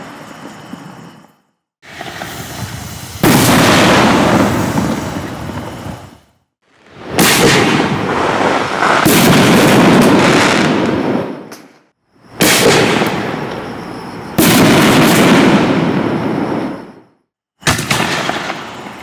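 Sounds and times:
firework burst with echo: 0:01.8 - 0:06.3, 0:06.9 - 0:11.6, 0:12.3 - 0:13.5, 0:14.4 - 0:17.0, 0:17.6 - 0:19.0.

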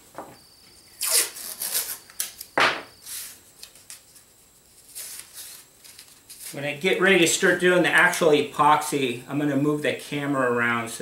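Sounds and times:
tape rasping rubs: 0:01.0 - 0:02.1, 0:03.0 - 0:06.6.

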